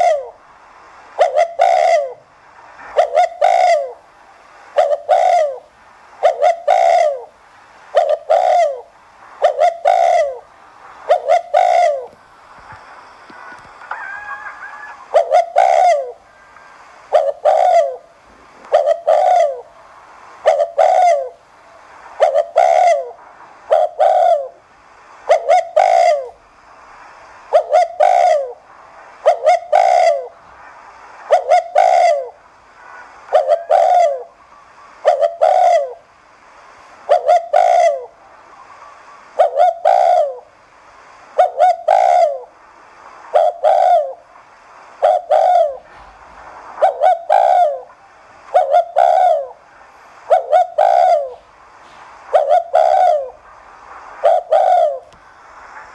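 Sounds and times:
dove cooing: 0.0 - 0.4, 1.2 - 2.3, 2.9 - 4.0, 4.8 - 12.2, 13.4 - 19.8, 20.4 - 21.4, 22.2 - 24.6, 25.2 - 26.4, 27.5 - 28.6, 29.2 - 30.4, 31.3 - 34.4, 35.0 - 36.0, 37.0 - 38.8, 39.4 - 40.5, 41.3 - 42.6, 43.3 - 44.3, 45.0 - 46.0, 46.8 - 49.6, 50.2 - 51.6, 52.3 - 53.4, 54.2 - 55.2.

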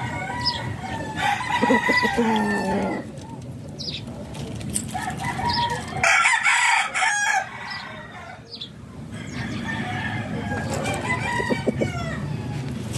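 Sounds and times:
rooster crowing: 0.0 - 3.1, 5.0 - 8.4, 9.2 - 12.6
chicken clucking: 0.4 - 6.0.

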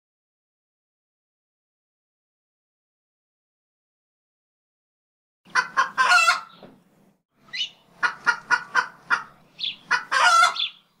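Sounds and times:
chicken drawn-out call: 5.5 - 6.6, 7.5 - 10.8
chicken clucking: 5.5 - 6.7, 7.5 - 10.8.

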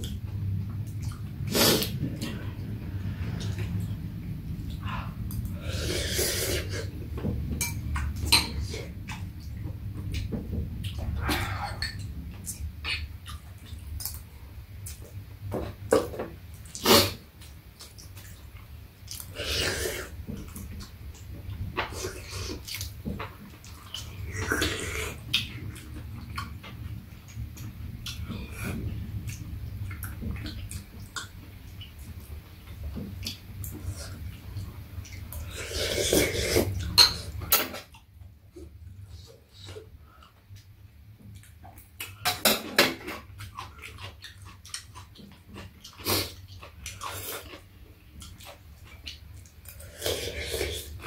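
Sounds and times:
low hum: 0.0 - 16.6
people chewing: 0.0 - 40.7, 41.3 - 51.0
low steady hum: 0.0 - 51.0
slurping soup: 5.6 - 6.9, 35.4 - 36.8, 49.8 - 51.0
chewing: 43.0 - 51.0.

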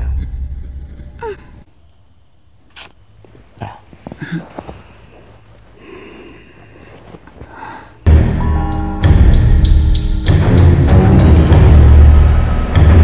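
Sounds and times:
crickets chirping: 0.0 - 8.8
sharp click: 2.7 - 3.0.

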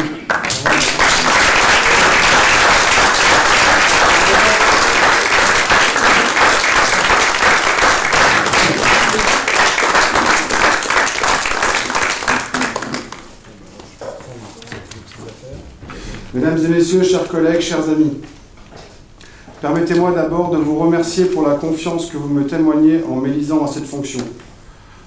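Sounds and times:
crowd applauding: 0.0 - 13.4.

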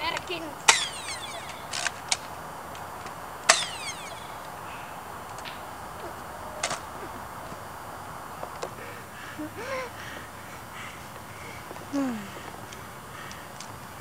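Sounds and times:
ricochet whine: 0.2 - 12.8
sharp gunshots: 0.6 - 2.4, 3.4 - 7.3.

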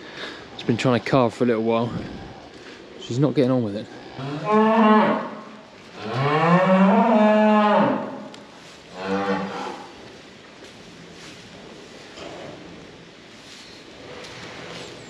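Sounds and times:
cow mooing: 4.0 - 8.3, 9.0 - 9.9.

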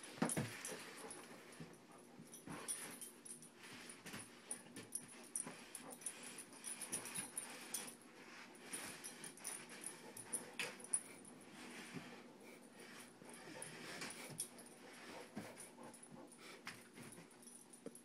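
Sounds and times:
toy rustles and knocks: 0.0 - 12.2
puppy breathing and mouthing: 0.2 - 18.0.

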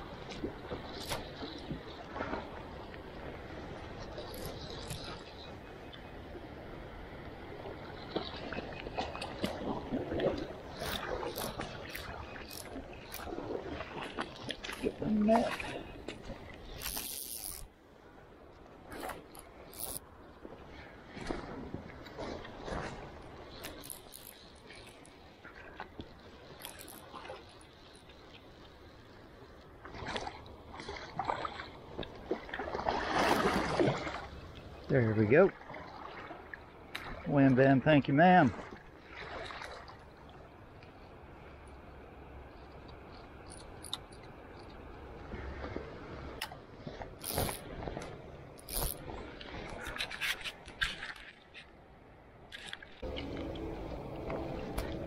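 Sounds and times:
stream water running: 0.0 - 55.0
short splashes and knocks: 8.0 - 17.3, 29.8 - 37.3, 38.4 - 40.0.

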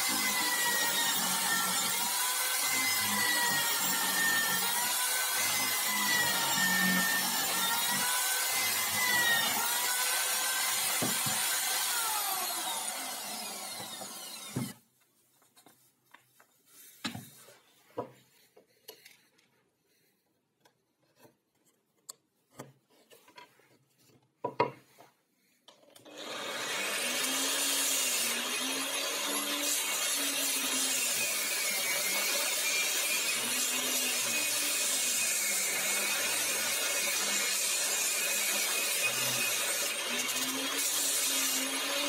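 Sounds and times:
angle grinder running: 0.0 - 14.8
electric drill boring into plywood: 0.0 - 14.8, 26.0 - 42.0.

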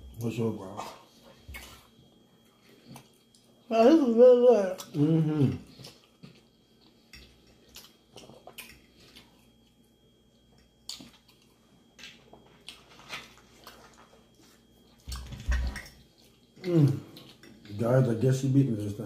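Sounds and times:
quiet chewing: 0.7 - 3.7, 4.7 - 18.1.

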